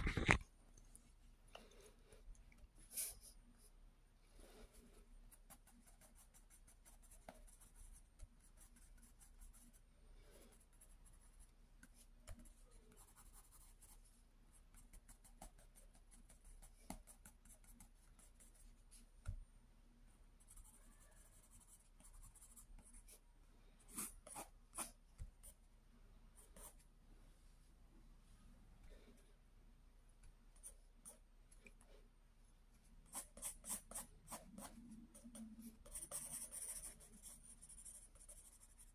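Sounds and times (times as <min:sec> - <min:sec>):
pencil scratching on paper: 0:04.6 - 0:19.1, 0:20.4 - 0:23.2, 0:23.9 - 0:25.6, 0:33.0 - 0:38.9.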